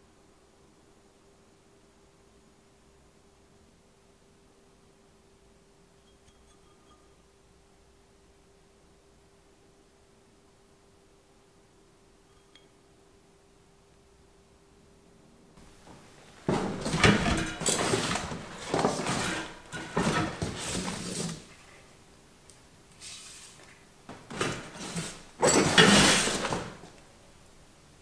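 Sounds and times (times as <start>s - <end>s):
cardboard box rustling and scraping: 16.4s - 21.6s, 24.3s - 26.8s.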